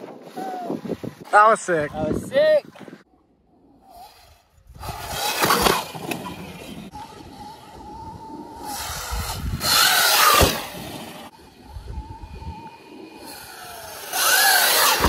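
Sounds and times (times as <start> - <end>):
electric dirt bike motor whining: 3.6 - 15.0
bike landing thump: 10.2 - 11.0.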